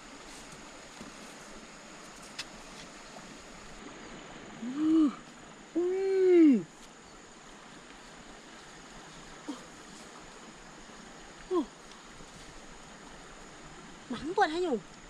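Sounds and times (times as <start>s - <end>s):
stream flowing: 0.0s - 15.0s
woman's wordless vocal sounds: 4.6s - 6.7s.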